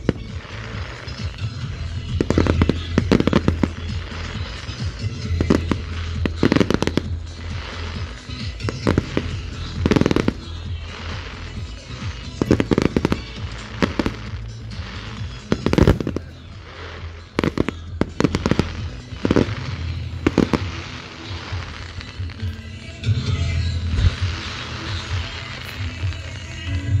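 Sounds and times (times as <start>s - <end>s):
crackling fireworks stars: 0.0s - 27.0s
fireworks bangs: 0.0s - 27.0s
music: 0.0s - 27.0s.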